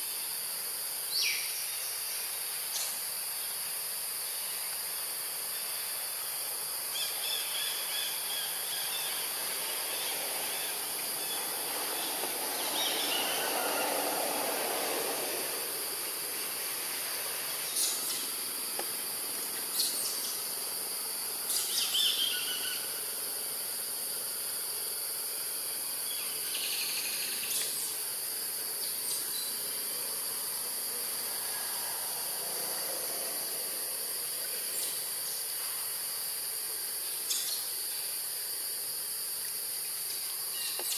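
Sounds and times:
insects droning: 0.0 - 40.9.

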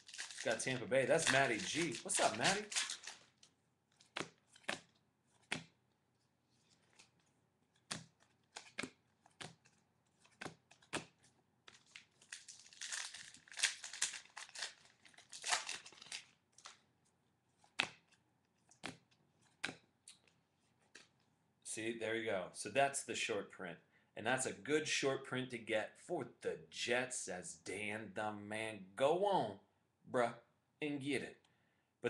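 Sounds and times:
foil wrapper crinkling and tearing: 0.0 - 3.5, 11.7 - 16.8
trading cards snapping: 0.1 - 3.2, 4.0 - 5.7, 6.8 - 16.8, 17.7 - 19.9.

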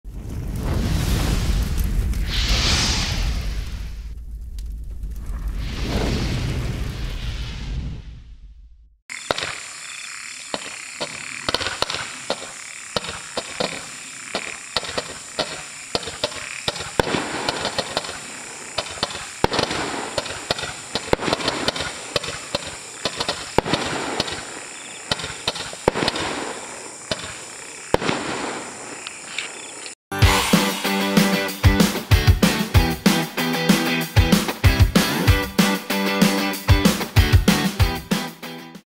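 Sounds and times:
firework hiss: 0.1 - 4.2, 9.1 - 29.3
firework pops and bangs: 10.6 - 29.0.

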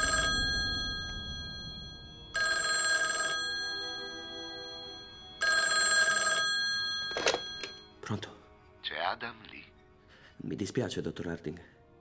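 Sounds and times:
telephone bell ringing: 0.0 - 8.0.

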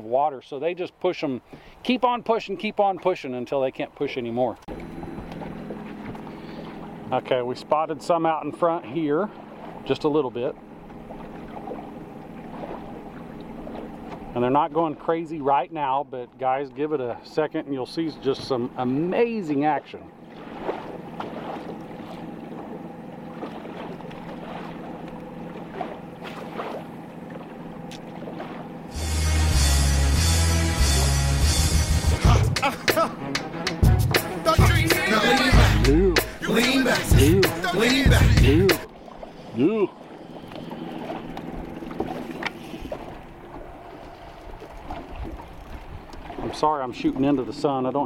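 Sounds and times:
light wind: 0.0 - 28.9, 38.9 - 48.0
boat motor humming: 1.2 - 48.0.

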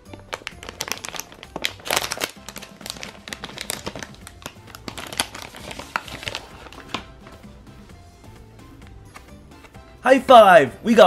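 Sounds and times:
plastic bag crinkling: 0.0 - 7.0
background music: 0.0 - 11.0.

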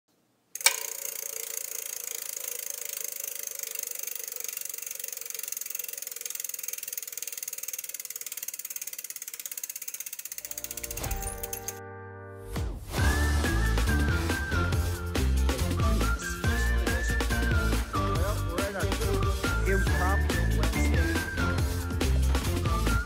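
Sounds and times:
bicycle freehub ticking: 0.5 - 11.8.

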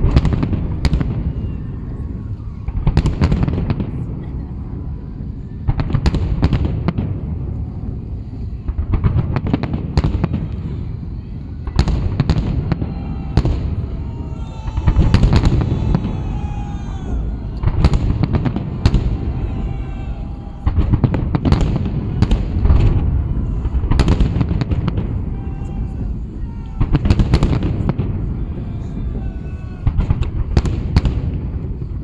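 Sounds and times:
low rumble and crackle: 0.0 - 32.0
firework shells booming: 11.7 - 29.2, 29.8 - 32.0.

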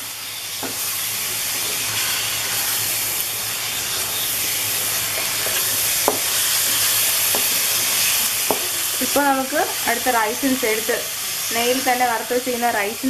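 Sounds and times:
food sizzling in a pan: 0.0 - 13.0
spatula knocking against pan: 6.0 - 6.3.

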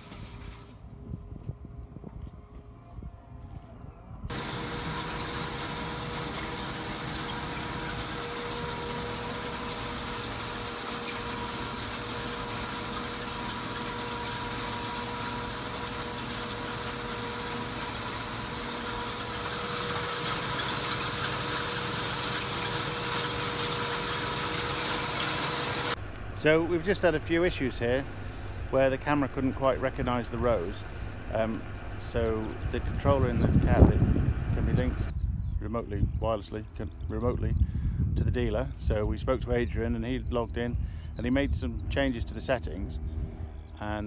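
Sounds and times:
open-air field noise: 0.0 - 44.0
steady whine: 2.6 - 35.2
tractor engine running: 4.3 - 35.4.

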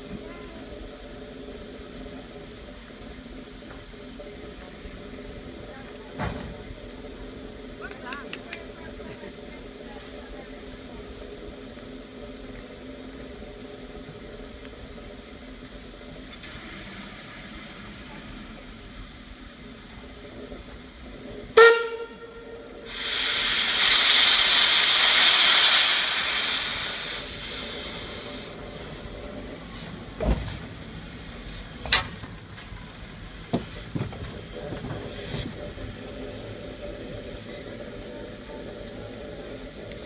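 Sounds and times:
hiss of escaping steam: 0.0 - 31.9, 32.7 - 40.0
steam locomotive whistle blast: 21.6 - 23.4.

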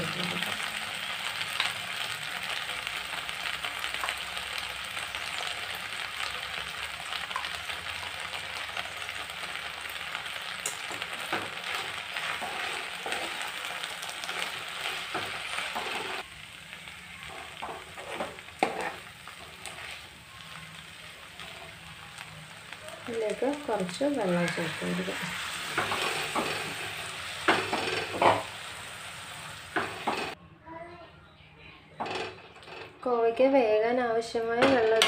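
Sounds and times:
vegetables sizzling in oil: 0.0 - 30.4
spoon scraping a pan: 10.6 - 16.2, 17.2 - 20.2, 23.7 - 28.7.

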